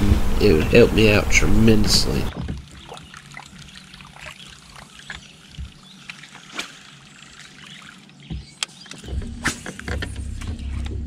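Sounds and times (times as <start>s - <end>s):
low steady hum: 0.0s - 8.2s
water lapping against boat hull: 2.3s - 10.2s
small clicks and ticks: 2.6s - 11.0s.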